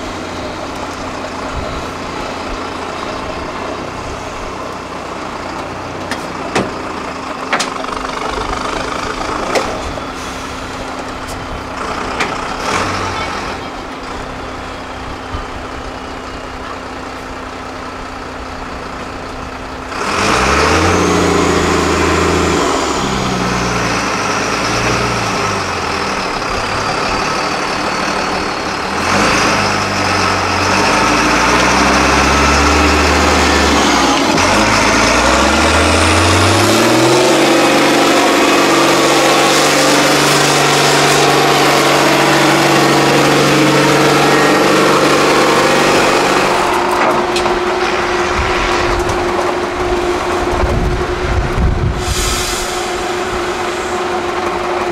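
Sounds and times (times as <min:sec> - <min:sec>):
diesel truck engine revving: 0:00.0 - 0:54.9
sharp engine knocks: 0:06.0 - 0:09.9.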